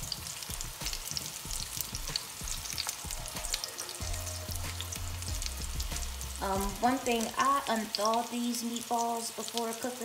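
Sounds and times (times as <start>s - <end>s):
meatballs sizzling in hot oil: 0.0s - 10.0s.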